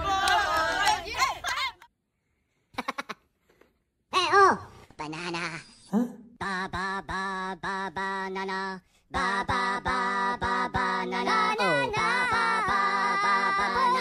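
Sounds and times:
high layered singing voices: 0:00.0 - 0:01.4, 0:06.4 - 0:14.0.

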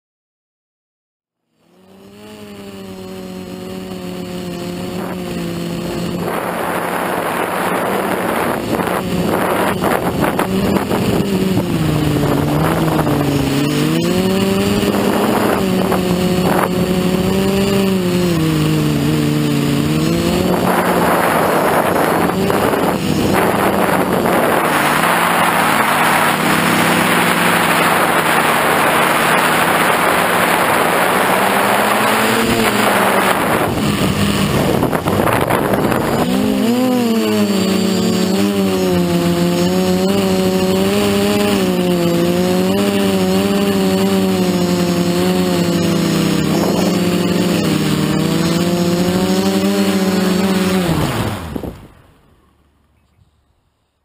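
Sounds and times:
drone motors whining: 0:01.4 - 0:52.9
wind rushing: 0:19.8 - 0:37.1.

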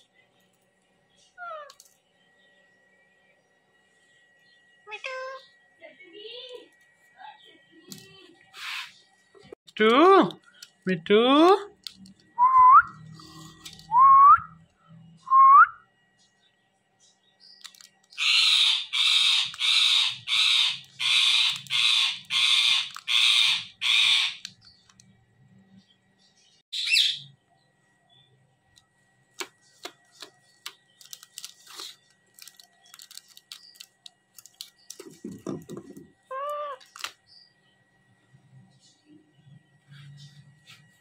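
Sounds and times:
parakeet squawking: 0:08.6 - 0:09.0, 0:18.2 - 0:24.5, 0:26.8 - 0:27.2, 0:36.3 - 0:37.0
beak clicking on objects: 0:17.6 - 0:25.1, 0:28.7 - 0:37.2.

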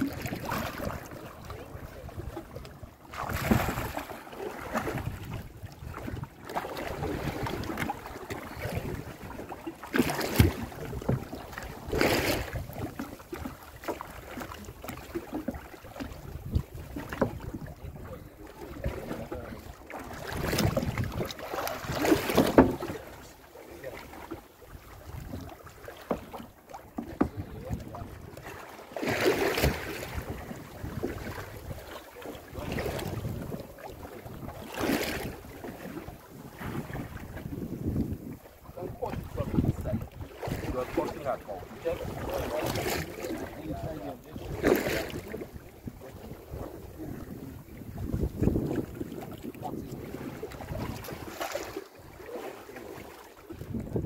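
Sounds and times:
water splashing: 0:00.0 - 0:54.0
wind buffeting microphone: 0:20.2 - 0:22.0, 0:32.6 - 0:34.6, 0:35.4 - 0:51.4, 0:53.5 - 0:54.0.

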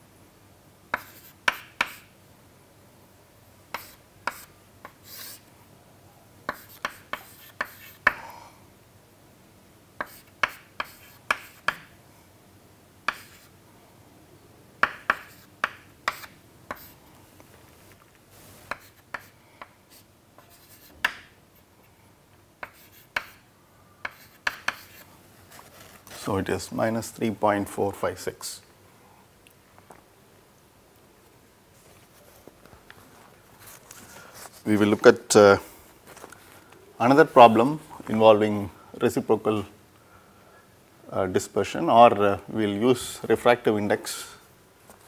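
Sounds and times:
chalk tapping and scratching: 0:00.9 - 0:02.1, 0:03.7 - 0:05.4, 0:06.5 - 0:08.2, 0:10.0 - 0:11.9, 0:13.1 - 0:13.5, 0:14.8 - 0:17.0, 0:18.6 - 0:21.3, 0:22.6 - 0:23.4, 0:24.0 - 0:26.2.

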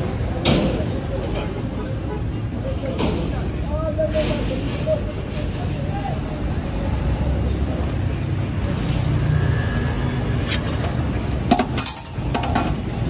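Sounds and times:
city street traffic rumble: 0:00.0 - 0:13.0
sharp clicks and knocks: 0:10.4 - 0:12.9.

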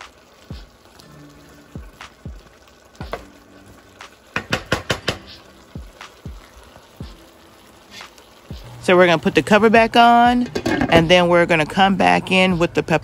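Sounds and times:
frying sizzle: 0:00.0 - 0:13.0
spoon knocking against pan: 0:04.3 - 0:05.4, 0:10.4 - 0:11.1.

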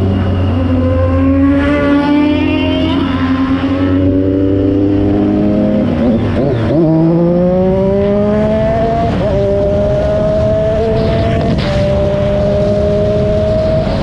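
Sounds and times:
motorcycle engine accelerating: 0:00.0 - 0:14.0
wind rumbling on microphone: 0:07.5 - 0:14.0.

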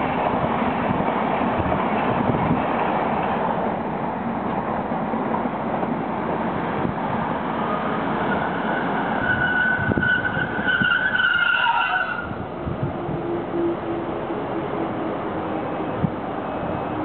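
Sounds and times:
diesel locomotive engine: 0:00.0 - 0:17.0
high metallic squeal: 0:07.7 - 0:12.4.

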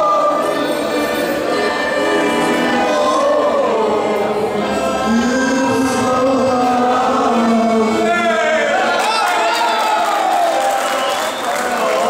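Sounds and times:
accordion: 0:00.0 - 0:09.0
man singing into a microphone: 0:00.0 - 0:09.0
men singing together: 0:00.0 - 0:09.0.

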